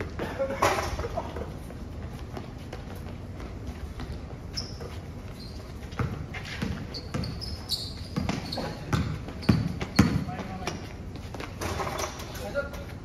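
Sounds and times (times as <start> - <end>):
sneakers squeaking on court: 0.0 - 12.9
basketball bouncing on court: 3.9 - 12.1.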